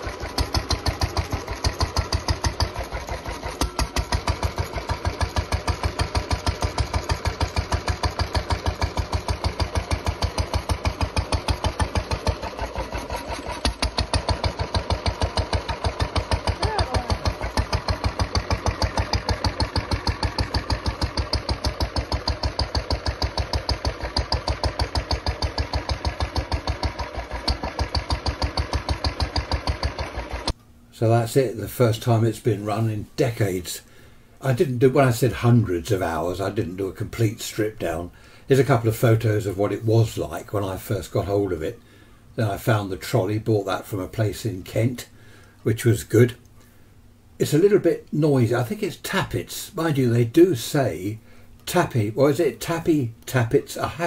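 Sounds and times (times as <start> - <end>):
engine mechanical clatter: 0.0 - 30.6
stationary engine running: 0.0 - 30.6.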